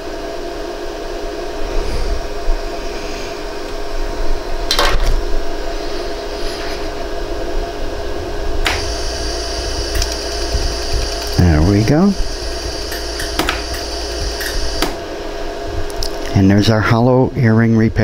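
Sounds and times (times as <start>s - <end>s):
laser welder hum: 8.2s - 15.6s
laser pulse clicks: 8.6s - 15.0s
high hiss: 8.7s - 15.2s.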